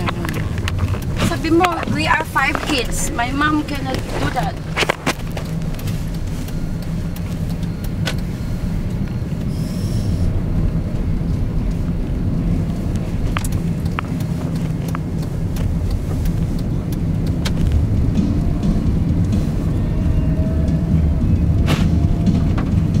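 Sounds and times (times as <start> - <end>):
light ticks: 0.0 - 20.8
car road and engine rumble: 0.0 - 23.0.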